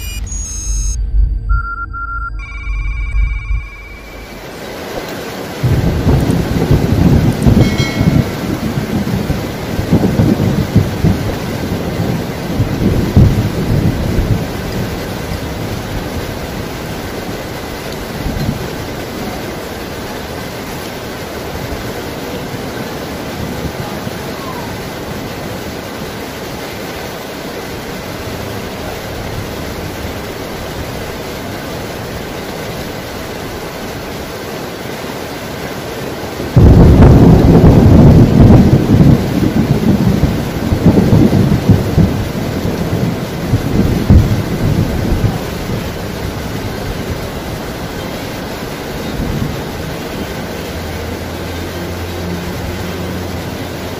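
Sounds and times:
thunder rumbling: 0.1s - 26.6s, 36.1s - 53.7s
heavy rain: 2.4s - 53.9s.

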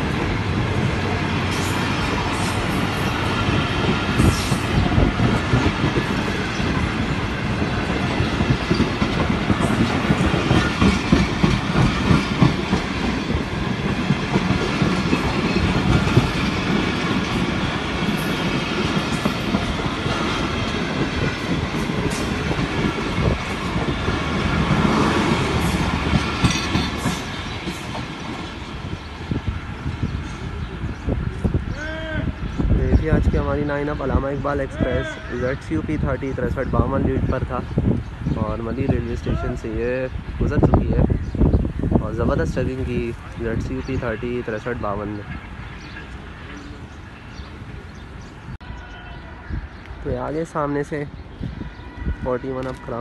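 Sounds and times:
train rumble: 0.0s - 53.0s
train wheels clattering over joints: 0.1s - 29.2s.

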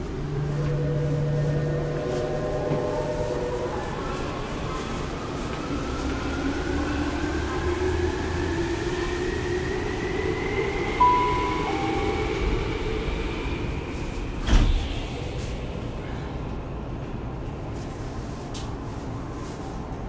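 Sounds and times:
two-note beep: 11.0s - 12.5s.

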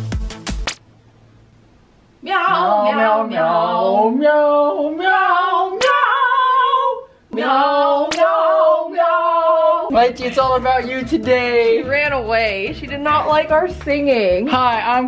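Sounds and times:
man and woman singing unaccompanied: 2.2s - 12.0s.

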